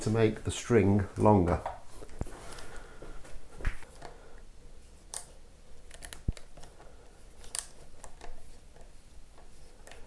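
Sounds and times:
screwdriver clicks and taps: 5.9 - 6.7.

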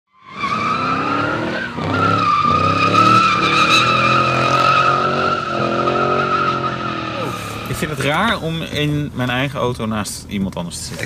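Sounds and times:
car tyres squealing in skid: 0.1 - 8.1
car engine revving: 0.2 - 9.1.

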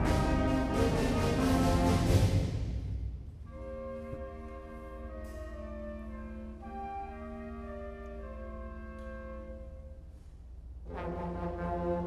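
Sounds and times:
concert band playing chords: 0.0 - 2.6.

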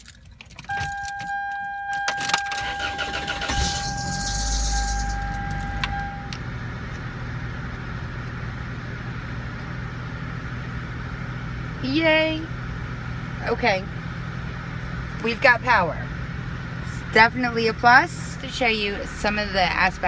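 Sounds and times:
ignition clicks: 0.0 - 7.1
steady high tone: 0.8 - 6.4
engine starting and idling: 2.0 - 6.0.

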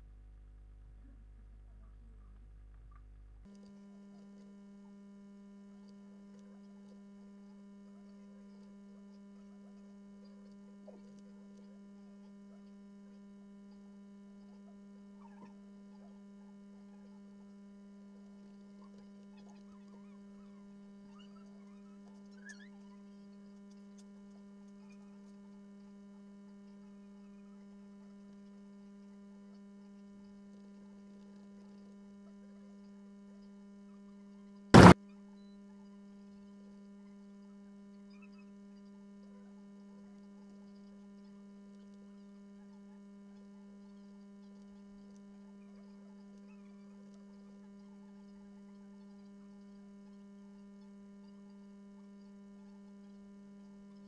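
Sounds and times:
low electrical hum: 0.0 - 34.2, 34.8 - 35.0
loud pop: 34.8 - 35.0.

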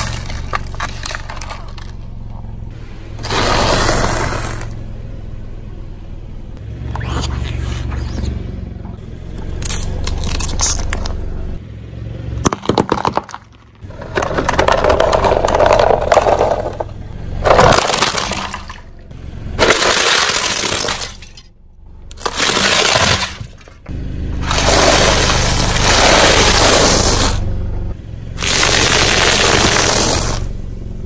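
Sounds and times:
tyre crushing objects: 0.0 - 2.0, 12.5 - 18.8, 22.1 - 23.8.

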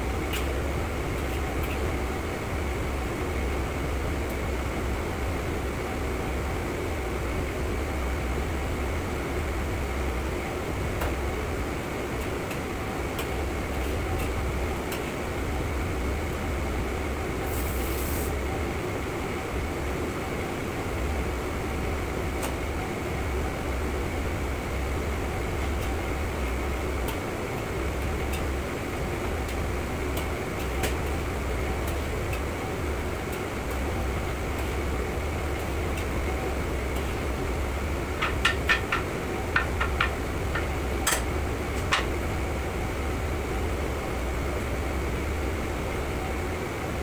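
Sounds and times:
gas range and extraction hood roar: 0.0 - 47.0
brief hiss: 17.5 - 18.4.

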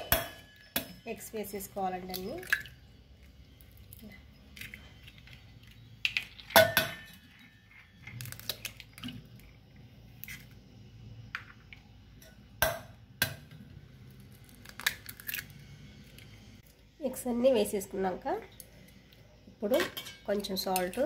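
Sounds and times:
eggs cracking on metal bowl: 2.0 - 9.6, 14.2 - 15.6, 19.8 - 21.0.

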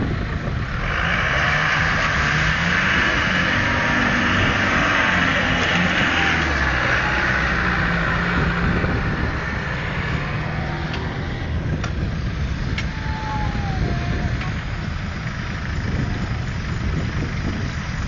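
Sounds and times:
vehicle driving past: 0.8 - 12.6.

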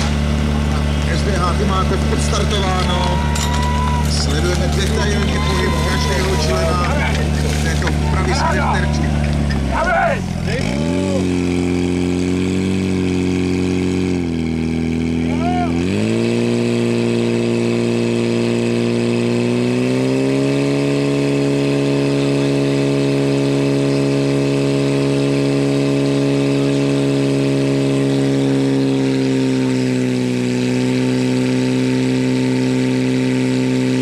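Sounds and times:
fire pump engine running: 0.0 - 34.0
water jets from hoses: 4.2 - 8.8.

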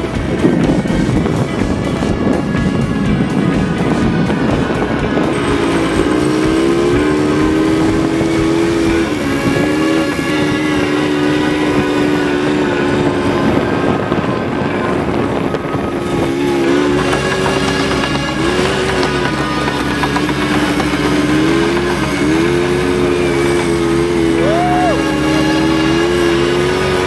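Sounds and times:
quad bike engine running: 0.0 - 27.0.

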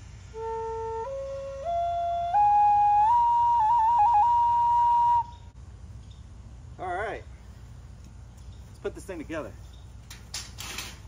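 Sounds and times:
wooden flute playing notes: 0.3 - 5.6.

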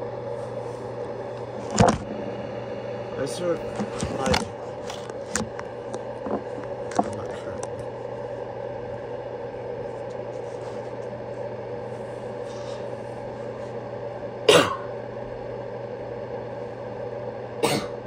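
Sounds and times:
steady low hum: 0.0 - 18.0
person coughing: 14.5 - 14.9, 17.6 - 18.0.

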